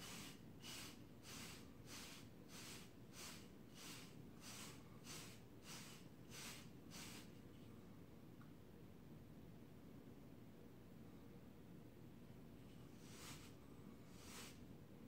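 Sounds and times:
brush swishing through hair: 0.0 - 7.3, 13.0 - 14.6.

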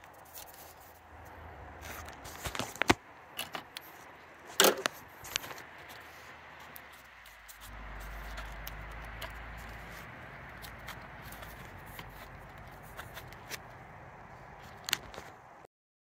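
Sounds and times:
light clicks and rustles: 0.0 - 15.5
steady low rumble: 4.2 - 15.6.

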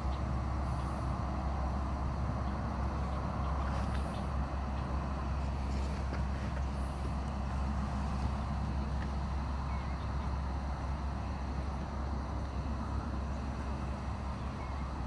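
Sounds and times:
electric blower fan drone: 0.0 - 15.0.

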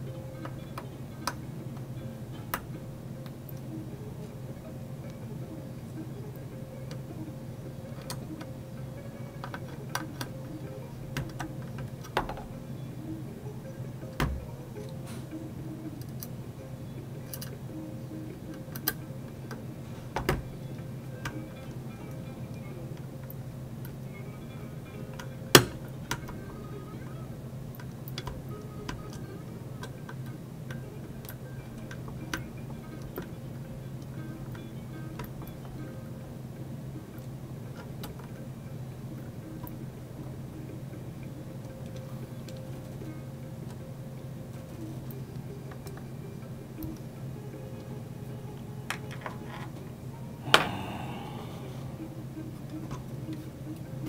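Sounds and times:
steady low hum: 49.9 - 54.0.

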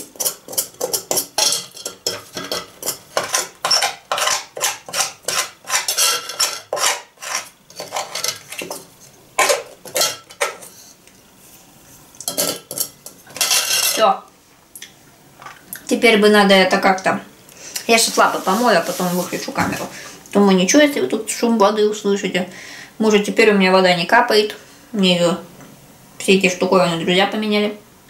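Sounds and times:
metal spoon scraping mesh strainer: 0.0 - 10.8, 12.3 - 14.1.

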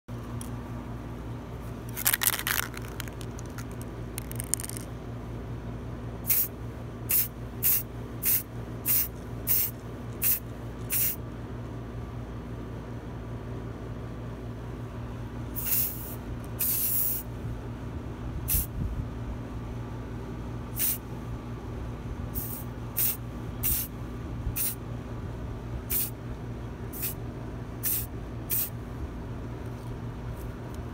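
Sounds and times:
spray can hissing: 2.0 - 4.8, 6.3 - 6.5, 7.1 - 11.2, 15.6 - 17.2, 20.8 - 21.0, 22.4 - 23.9, 24.6 - 24.8, 25.9 - 26.1, 27.0 - 27.2, 27.8 - 28.7.

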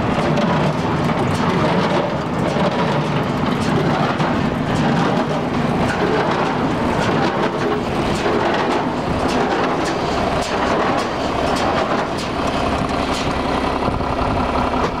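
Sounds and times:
baler mechanical clatter: 0.0 - 15.0
tractor engine drone: 0.0 - 15.0.

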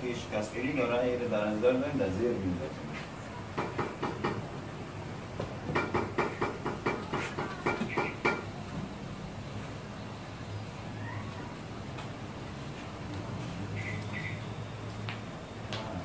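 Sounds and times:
wooden planks knocking: 5.7 - 8.4.

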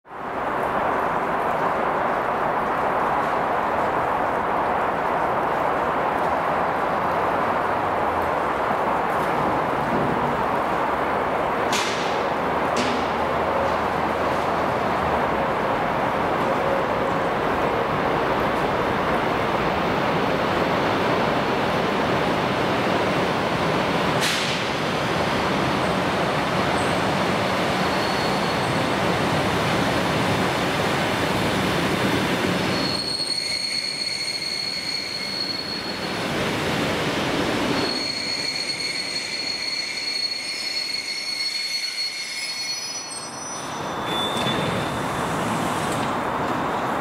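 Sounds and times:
train wheels on rails: 0.1 - 47.0
high brake squeal: 27.8 - 28.8, 32.7 - 36.2, 37.6 - 45.4.

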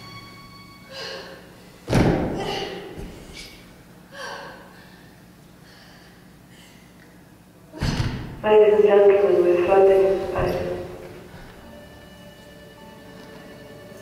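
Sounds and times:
body thumping onto wooden floor: 1.9 - 3.3.

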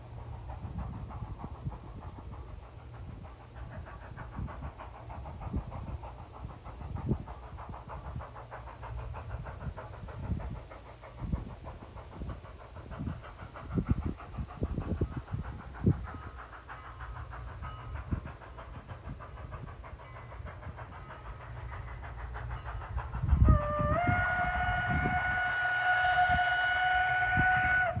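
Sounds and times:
steam hissing: 0.0 - 28.0
steam locomotive chuffing: 0.0 - 28.0.

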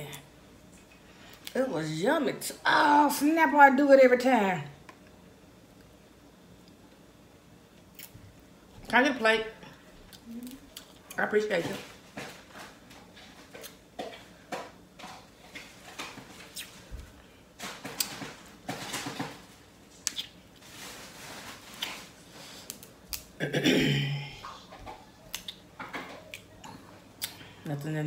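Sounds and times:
eating sounds: 24.3 - 27.5.

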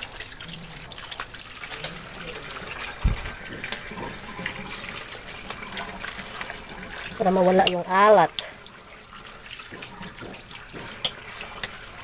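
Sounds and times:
small water splashes: 0.0 - 12.0
tap water running: 0.0 - 12.0
dull knock: 3.0 - 3.3.

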